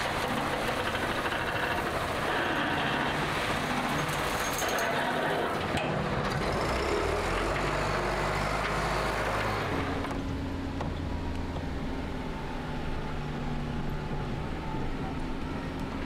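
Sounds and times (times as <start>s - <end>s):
car engine: 0.0s - 16.0s
road noise: 0.0s - 16.0s.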